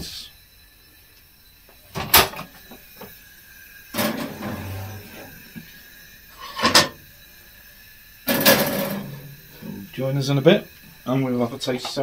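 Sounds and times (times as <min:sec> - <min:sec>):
oven door clunk and rattle: 0:04.0 - 0:05.3, 0:08.3 - 0:09.3.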